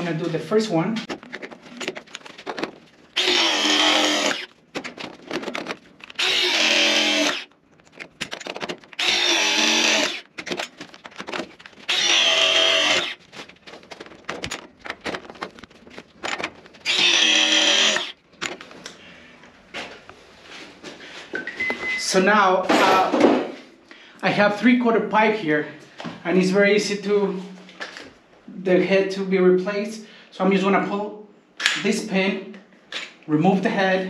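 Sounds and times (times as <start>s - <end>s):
press tool motor running: 3.2s - 4.5s, 6.2s - 7.5s, 9.0s - 10.3s, 11.9s - 13.2s, 16.8s - 18.2s.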